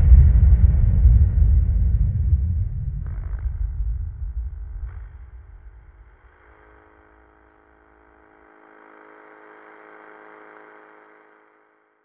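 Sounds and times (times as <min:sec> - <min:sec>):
deep rumble: 0:00.0 - 0:07.6
electronic drone: 0:02.3 - 0:12.0.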